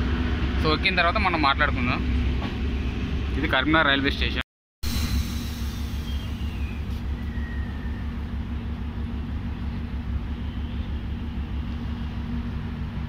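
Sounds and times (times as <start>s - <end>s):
train diesel engine idling: 4.9s - 13.0s.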